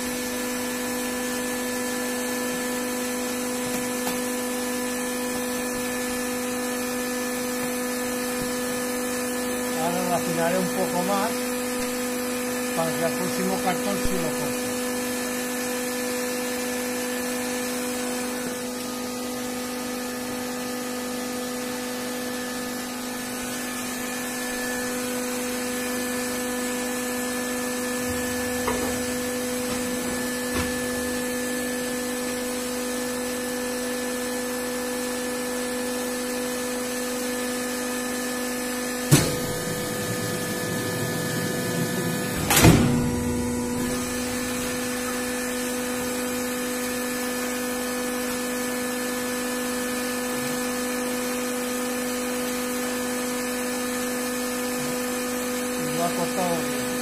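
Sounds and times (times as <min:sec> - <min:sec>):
die-cutting machine humming: 0:00.0 - 0:57.0
machine sharp clunks: 0:42.4 - 0:43.3.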